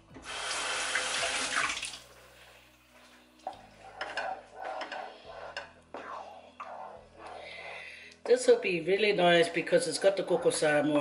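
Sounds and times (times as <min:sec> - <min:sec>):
water running from a tap: 0:00.2 - 0:02.1.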